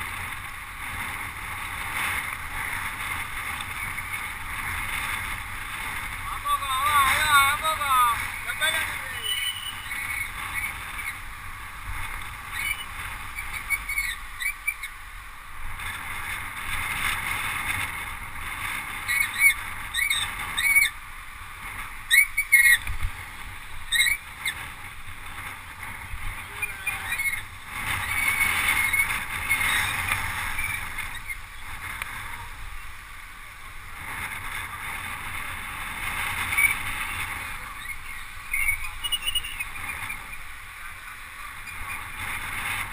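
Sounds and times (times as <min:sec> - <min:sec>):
road rush: 0:00.0 - 0:42.9
wind buffeting microphone: 0:00.0 - 0:42.9
high chirps and squeaks: 0:09.0 - 0:11.2, 0:12.5 - 0:15.0, 0:37.8 - 0:40.4.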